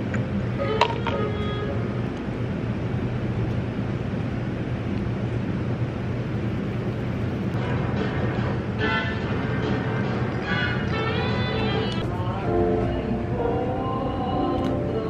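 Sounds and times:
steady low hum: 0:00.0 - 0:15.0
faint music: 0:07.1 - 0:15.0.

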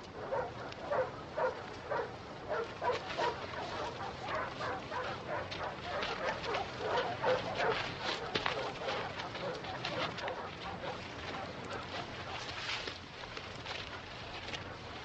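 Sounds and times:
dog barking: 0:00.2 - 0:12.4.

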